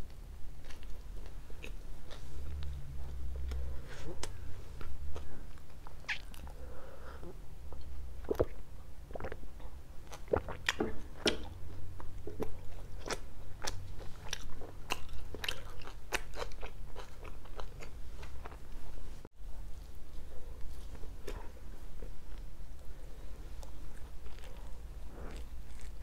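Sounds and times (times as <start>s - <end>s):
chewing crunchy pizza: 8.2s - 19.0s, 23.6s - 26.0s.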